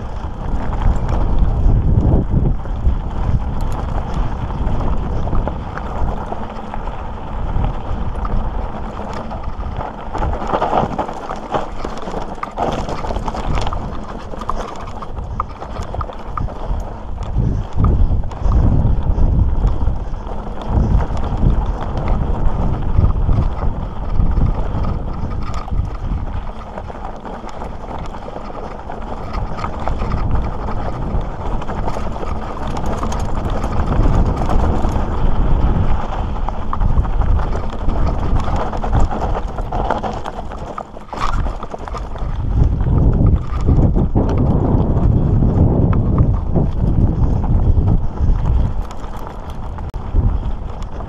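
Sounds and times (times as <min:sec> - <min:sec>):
bike rattling: 0:00.0 - 0:51.0
tyres crunching over stones: 0:00.0 - 0:51.0
wind on microphone: 0:00.0 - 0:51.0.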